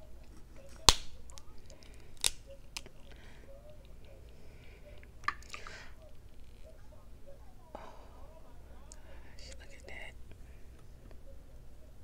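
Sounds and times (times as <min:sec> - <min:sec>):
crab shell cracking: 0:00.8 - 0:03.0.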